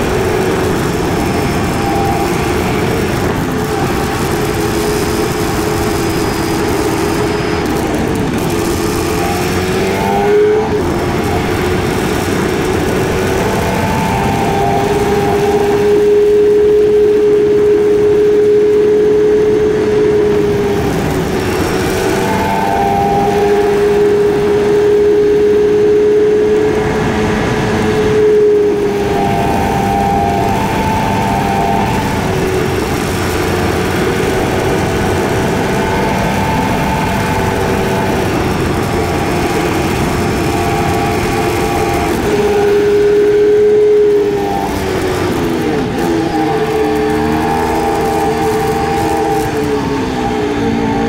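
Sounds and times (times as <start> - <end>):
motorcycle engine cruising: 0.0 - 51.0
road and wind noise: 0.0 - 51.0.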